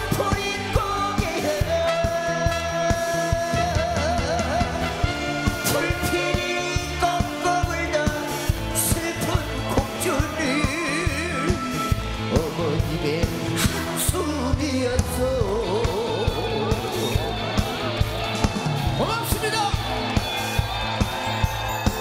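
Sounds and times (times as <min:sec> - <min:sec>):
man singing with vibrato: 0:00.0 - 0:17.4
band with drums bass and keyboards: 0:00.0 - 0:22.0.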